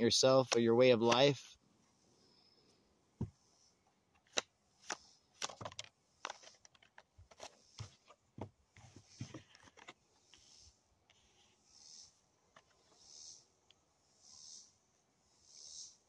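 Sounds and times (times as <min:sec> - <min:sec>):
cards being shuffled: 0:04.3 - 0:08.2.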